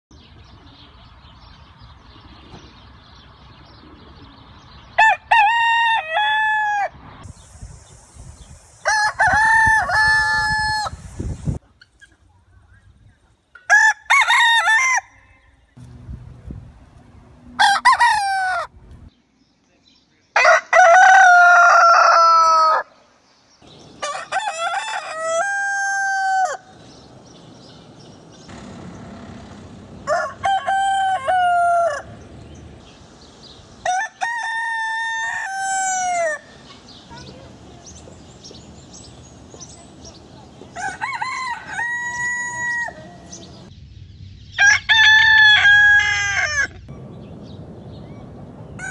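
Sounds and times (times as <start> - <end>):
roosters crowing: 5.0 - 7.0, 8.8 - 11.1, 13.6 - 15.6, 17.4 - 18.8, 20.4 - 23.0, 23.6 - 37.0, 40.6 - 43.7, 44.6 - 47.2, 48.6 - 48.9.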